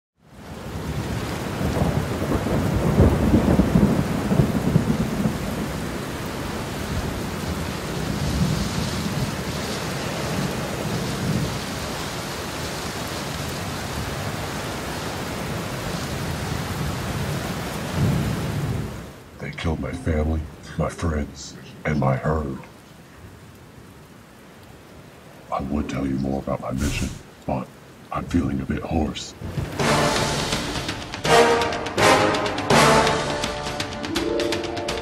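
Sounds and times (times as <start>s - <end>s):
steady rain: 0.2s - 35.0s
rolling thunder: 0.7s - 12.0s, 16.2s - 19.0s, 29.4s - 32.2s.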